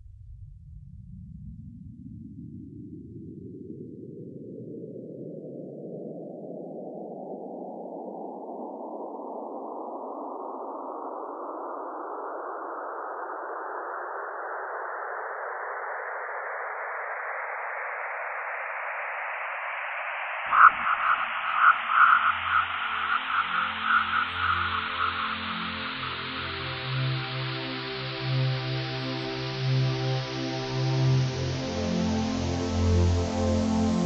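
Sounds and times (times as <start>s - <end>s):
synthesized wind hiss rising: 19.7s - 34.0s.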